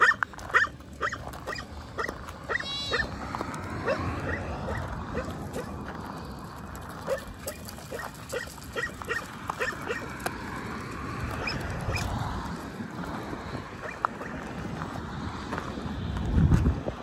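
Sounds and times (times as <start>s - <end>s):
dog whimpering and yipping: 0.0s - 3.2s, 3.8s - 5.8s, 7.1s - 10.1s, 11.4s - 12.1s.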